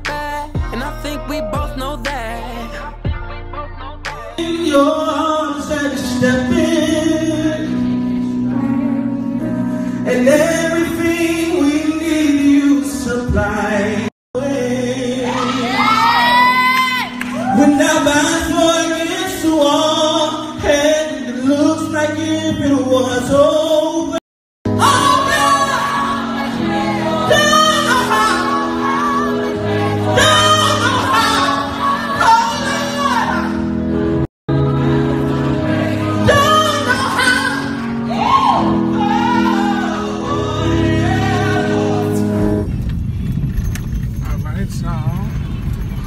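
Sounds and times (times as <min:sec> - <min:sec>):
man singing into a microphone: 0:00.0 - 0:16.4, 0:17.5 - 0:26.1, 0:36.1 - 0:42.5.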